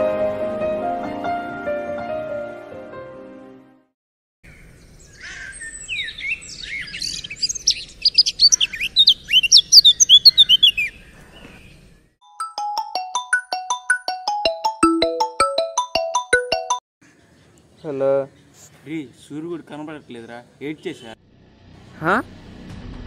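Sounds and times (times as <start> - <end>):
birds chirping: 4.5 - 12.2
mobile phone ringtone: 12.2 - 16.8.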